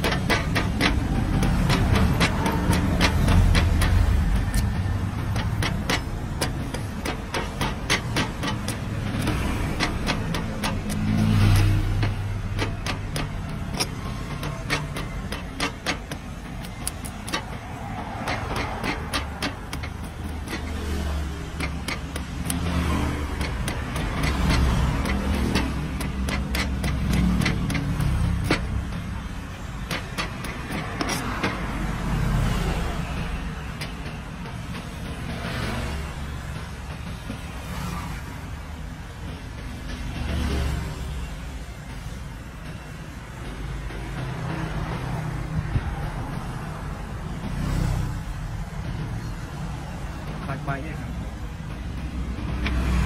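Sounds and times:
cleaver chopping coconut husk: 0.0s - 29.0s
vehicle engine running: 0.0s - 38.2s.

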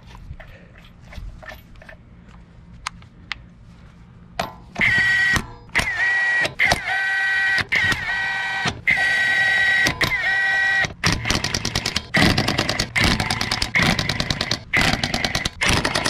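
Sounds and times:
impact wrench hammering: 4.4s - 16.0s
impact wrench whining: 4.4s - 16.0s.

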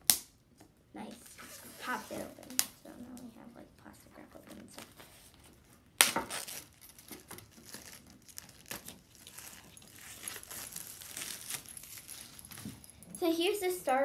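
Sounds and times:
plastic wrap crinkling: 4.2s - 13.0s.

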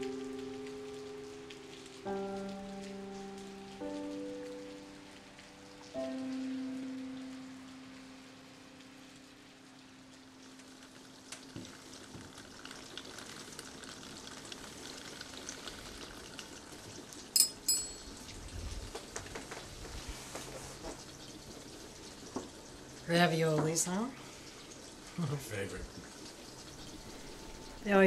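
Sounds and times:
rain patter: 0.0s - 28.0s
tableware clinking: 17.4s - 18.3s.

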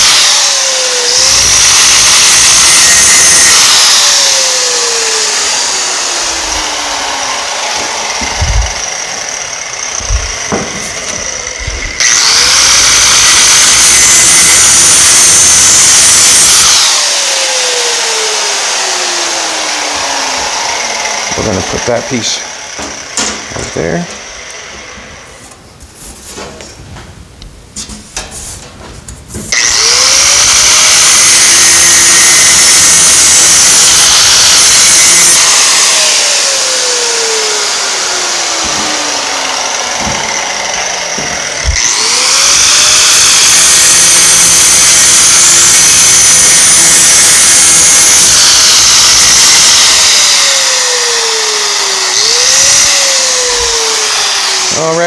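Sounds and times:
angle grinder whining: 0.0s - 25.8s, 29.4s - 55.0s.

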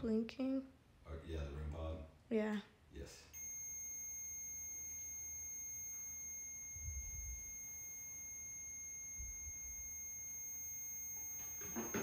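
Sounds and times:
high-pitched electronic tone: 3.4s - 12.0s.

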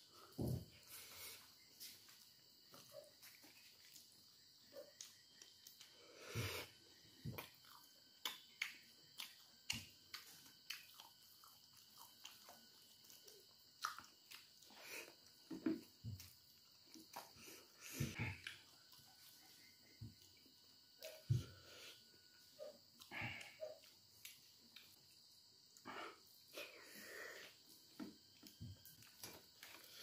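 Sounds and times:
man chewing and smacking: 7.2s - 21.4s, 27.8s - 30.0s.

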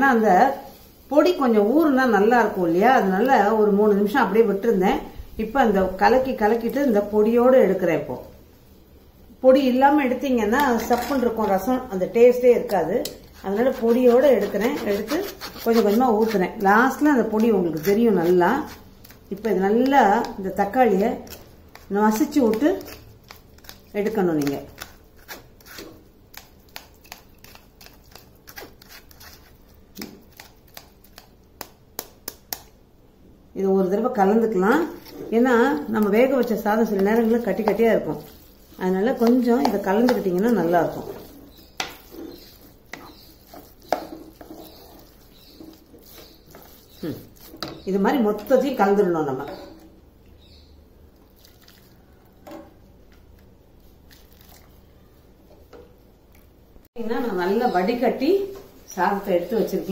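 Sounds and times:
wooden spoon scraping metal strainer: 12.6s - 26.0s, 34.6s - 48.7s.

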